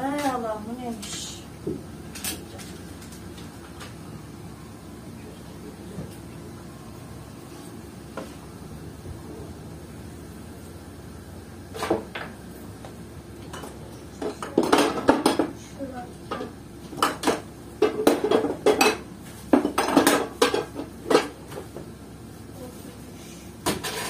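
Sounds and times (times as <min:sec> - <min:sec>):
pots and pans clanking: 0:13.4 - 0:15.6, 0:16.3 - 0:21.8, 0:23.6 - 0:24.0.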